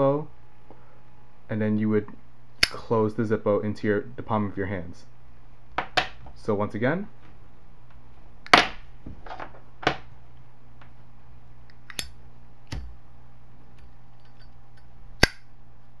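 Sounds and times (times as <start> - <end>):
lighter lid metal clicks: 11.9 - 12.1.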